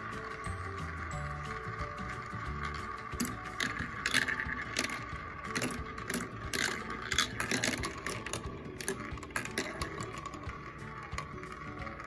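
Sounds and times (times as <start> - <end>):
marbles clattering down plastic run: 0.0 - 12.0.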